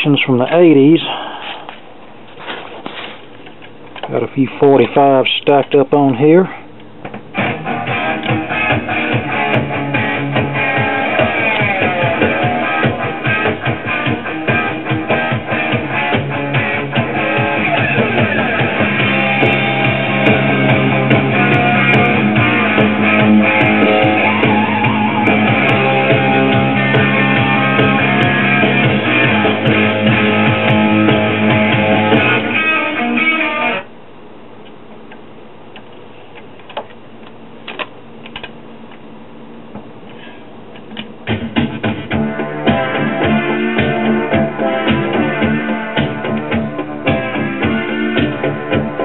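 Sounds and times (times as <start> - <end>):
record playing music: 6.8 - 34.0, 40.8 - 49.0.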